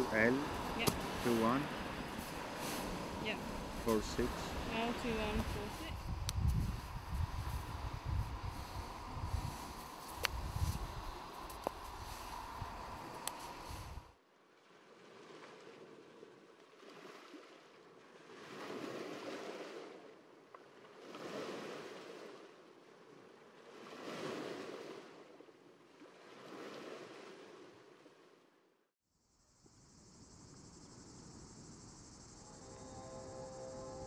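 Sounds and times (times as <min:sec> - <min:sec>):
steady high hiss: 0:00.0 - 0:06.7
small waves breaking on beach: 0:00.0 - 0:28.6.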